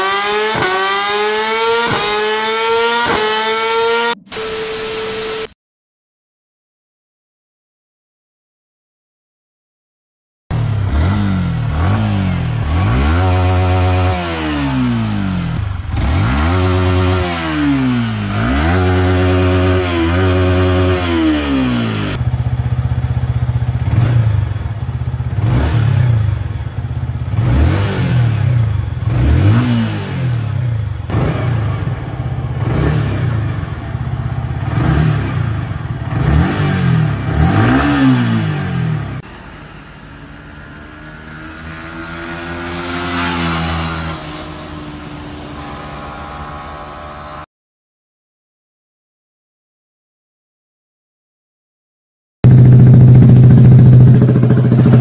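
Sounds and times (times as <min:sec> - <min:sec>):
motorcycle engine revving: 0:00.0 - 0:04.4, 0:10.5 - 0:39.3, 0:40.9 - 0:47.5, 0:52.4 - 0:55.0.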